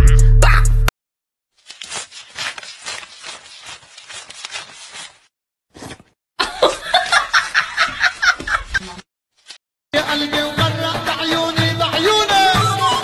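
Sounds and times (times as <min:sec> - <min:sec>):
paper banknotes rustling: 0:01.5 - 0:06.1, 0:09.4 - 0:09.6.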